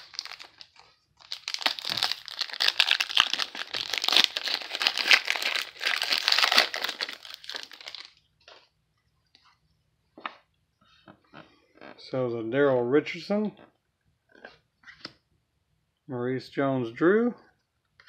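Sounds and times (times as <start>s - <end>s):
foil wrapper crinkling: 0.0s - 8.2s.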